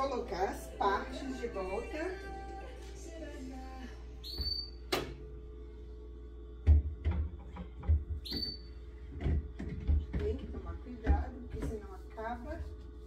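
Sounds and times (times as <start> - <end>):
knocks and thuds: 6.6 - 8.4.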